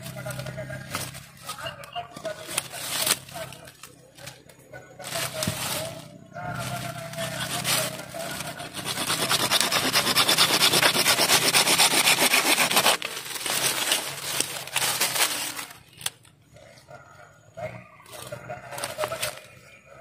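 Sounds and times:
hand saw cutting wood: 6.7 - 15.1.

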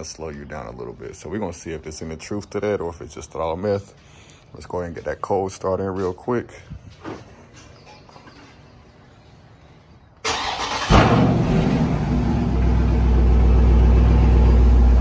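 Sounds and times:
engine starting and idling: 10.2 - 15.0.

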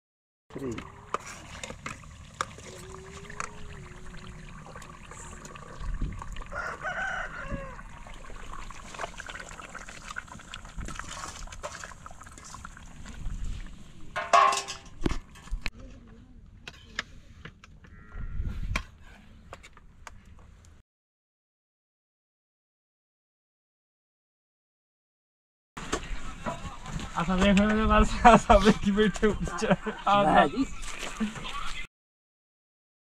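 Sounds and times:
rooster crow-like call: 6.5 - 8.1.

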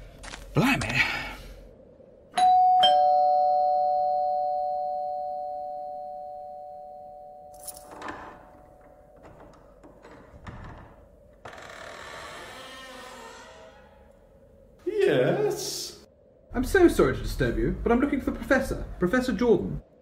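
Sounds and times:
two-note doorbell chime: 2.4 - 8.2.

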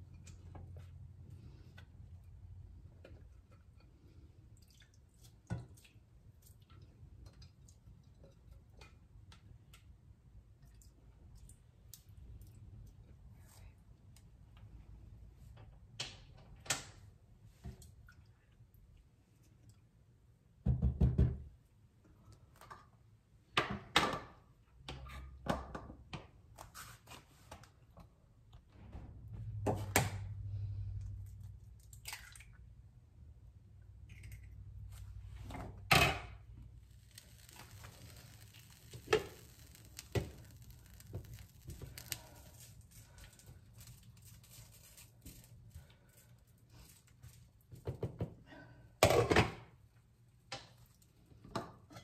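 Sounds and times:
egg frying hiss: 36.6 - 43.8.

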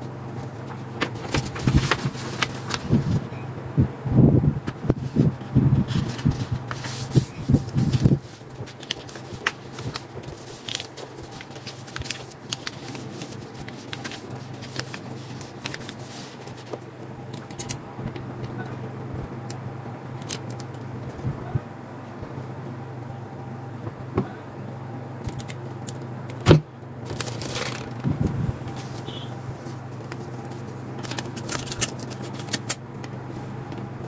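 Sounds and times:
paper rustling and scraping metal: 0.0 - 3.3, 4.9 - 17.8, 27.0 - 33.6
low steady hum: 0.0 - 34.0.

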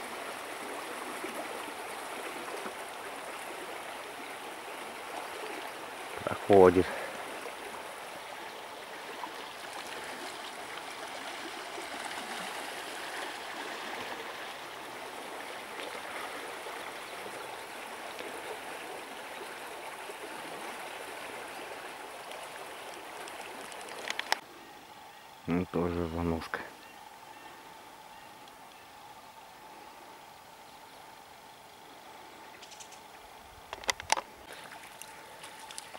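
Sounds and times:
river flowing over stones: 0.0 - 35.9
sharp clicks: 23.6 - 24.4.

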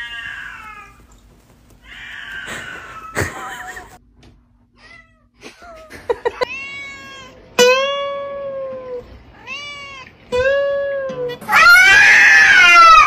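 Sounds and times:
cat meowing: 6.4 - 7.4, 9.4 - 10.2.

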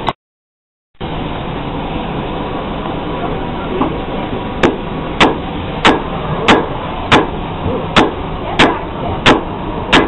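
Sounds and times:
hammer striking iron on anvil: 4.6 - 10.0.

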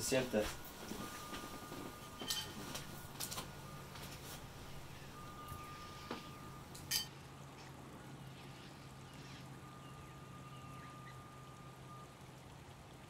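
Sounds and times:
faint high chirps: 0.0 - 7.1, 8.3 - 12.2
low steady hum: 0.0 - 13.0
spoon clinking on ceramic bowl: 2.1 - 3.4, 6.3 - 7.1.

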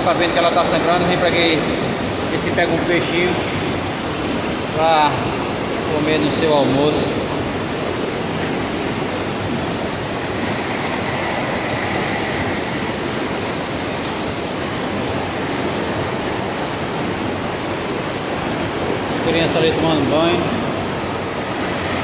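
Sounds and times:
water rushing over a spillway: 0.0 - 22.0.

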